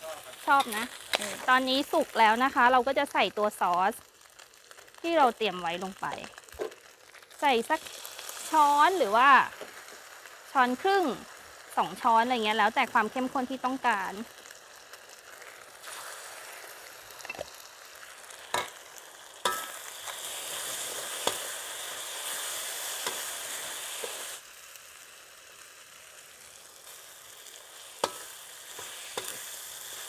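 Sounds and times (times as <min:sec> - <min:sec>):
chicken sizzling in a pan: 0:00.0 - 0:30.0
spatula scraping a pan: 0:27.8 - 0:30.0.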